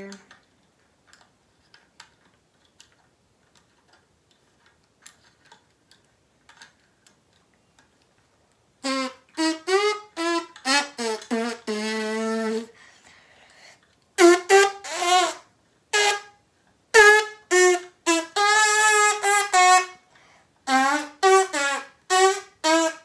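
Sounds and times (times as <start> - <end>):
trumpet playing notes: 8.8 - 12.8, 14.2 - 20.0, 20.7 - 23.0.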